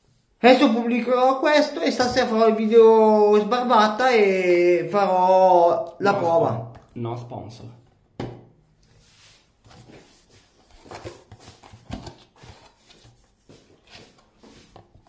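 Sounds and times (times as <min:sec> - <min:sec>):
cardboard and paper rustling: 0:09.2 - 0:15.0.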